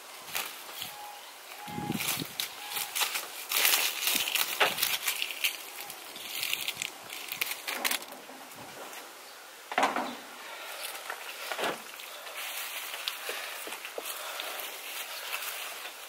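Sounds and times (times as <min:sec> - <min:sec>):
handling sound: 0:00.3 - 0:09.0
soil rustling into metal planter: 0:01.5 - 0:09.1, 0:09.7 - 0:16.0.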